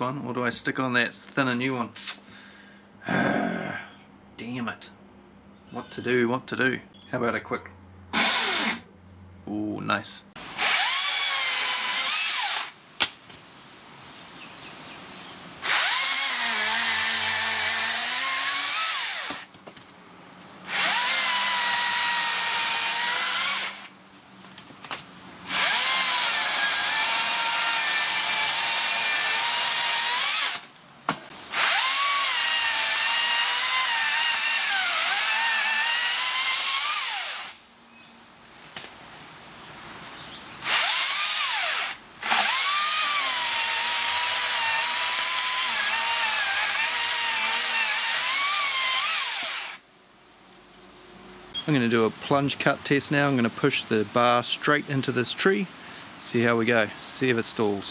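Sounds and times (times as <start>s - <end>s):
chainsaw cutting wood: 8.1s - 8.8s, 10.4s - 12.8s, 15.6s - 19.5s, 20.7s - 23.9s, 24.9s - 37.6s, 40.6s - 49.8s.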